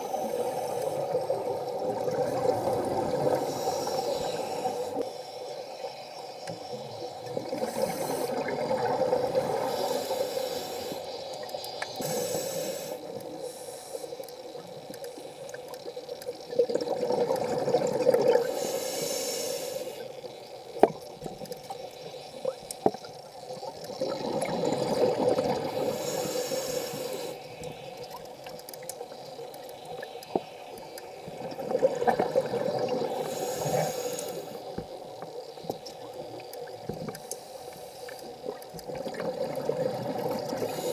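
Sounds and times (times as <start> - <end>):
scuba regulator breathing: 0.0 - 6.1, 7.5 - 8.6, 9.2 - 15.6, 18.3 - 20.2, 25.0 - 28.0, 32.8 - 35.6, 36.4 - 38.5, 40.2 - 40.9
exhaust bubbles: 16.5 - 18.5.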